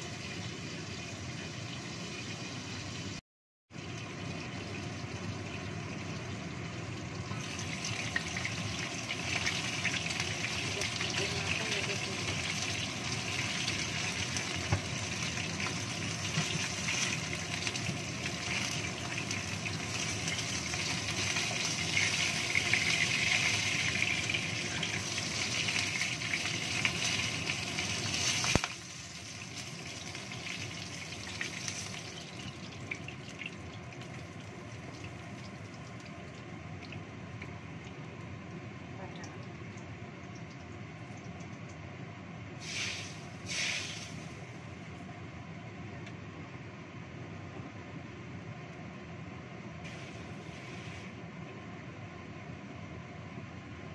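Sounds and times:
food sizzling in hot oil: 0:00.0 - 0:03.2, 0:03.8 - 0:35.9, 0:42.6 - 0:44.7, 0:49.9 - 0:51.2.

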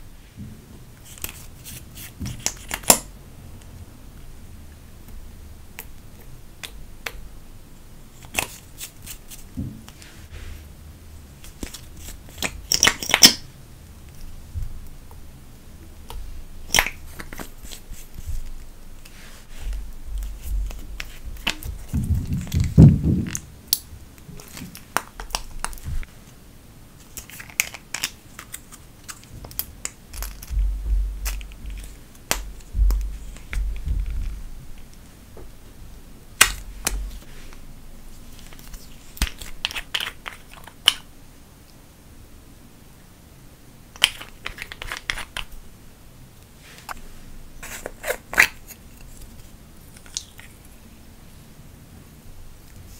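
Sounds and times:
dull thump: 0:30.5 - 0:31.3, 0:32.5 - 0:34.4.

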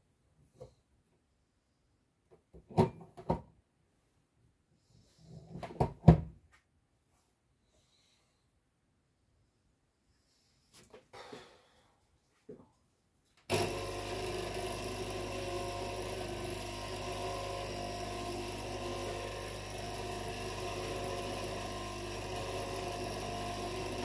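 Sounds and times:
small electric motor humming: 0:13.5 - 0:24.0.

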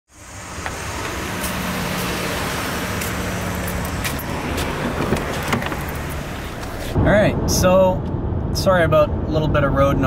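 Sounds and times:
road traffic hum: 0:00.1 - 0:10.0.

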